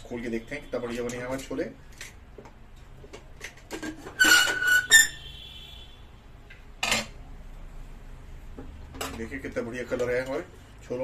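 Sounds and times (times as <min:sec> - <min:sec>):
lid squealing against rim: 0:04.0 - 0:05.3.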